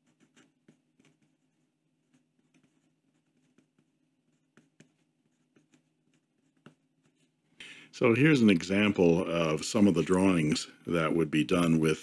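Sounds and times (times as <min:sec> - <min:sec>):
pencil scratching on paper: 0:00.0 - 0:07.5
faint low hum: 0:00.0 - 0:12.0.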